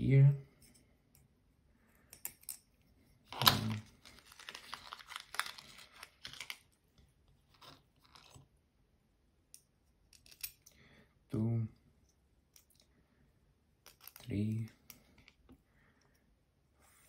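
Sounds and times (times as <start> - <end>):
plastic bag crinkling: 3.4 - 6.7.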